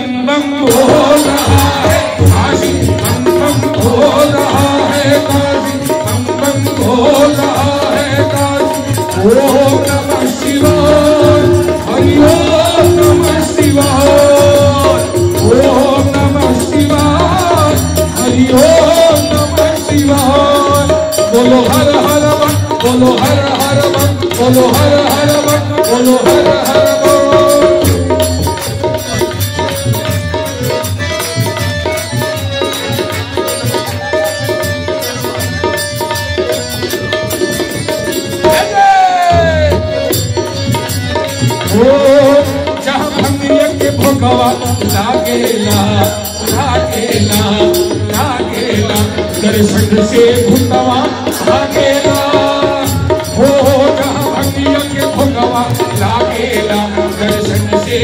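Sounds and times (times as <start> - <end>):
devotional singing: 0.0 - 28.4, 41.2 - 58.0
jingling percussion: 0.0 - 58.0
drum beat: 0.6 - 58.0.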